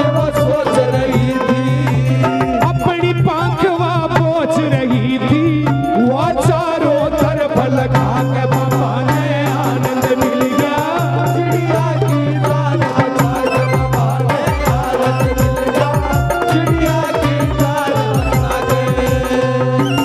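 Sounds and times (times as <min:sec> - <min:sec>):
hand drum rhythm: 0:00.0 - 0:20.0
ornamented melody with pitch glides: 0:11.0 - 0:20.0.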